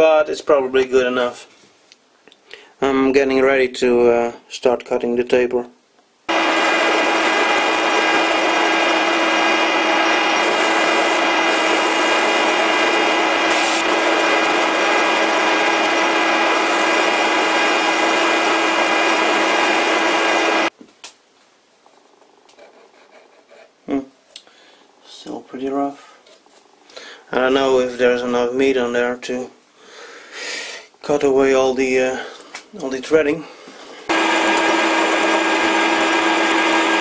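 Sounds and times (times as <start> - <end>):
metal lathe whining: 6.3 - 20.7, 34.1 - 37.0
lathe tool scraping metal: 6.4 - 20.7.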